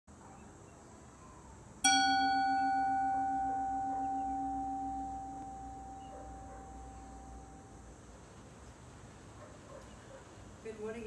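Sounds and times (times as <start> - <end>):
singing bowl ringing: 1.8 - 7.9.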